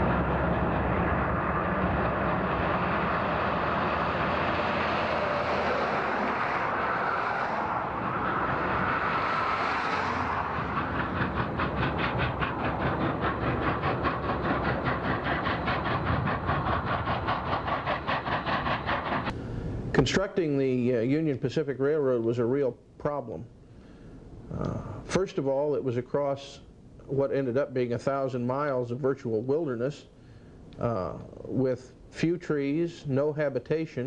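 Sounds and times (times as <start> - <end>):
steam locomotive rumbling past: 0.0 - 20.9.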